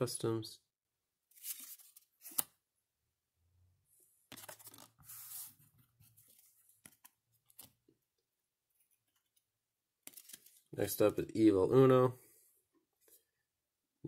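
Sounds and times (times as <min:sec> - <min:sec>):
cards shuffling and rustling: 0:01.3 - 0:02.6, 0:04.3 - 0:07.8, 0:08.8 - 0:10.7.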